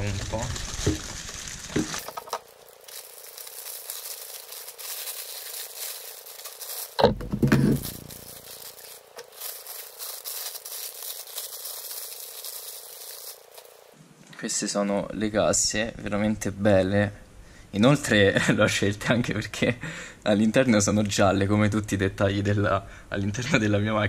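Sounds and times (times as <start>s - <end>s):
handling noise: 0.0s - 13.9s
plastic bag crinkling: 0.0s - 14.0s.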